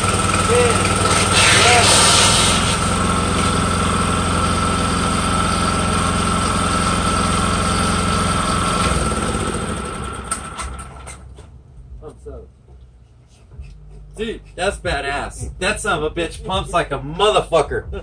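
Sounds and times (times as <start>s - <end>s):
dredge pump engine whining: 0.0s - 11.4s.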